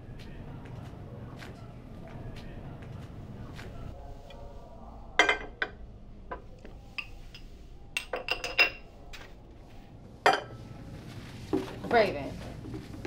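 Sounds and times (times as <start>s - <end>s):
low room hum: 0.0s - 13.0s
plates and glasses clinking: 5.2s - 9.3s, 10.2s - 10.6s.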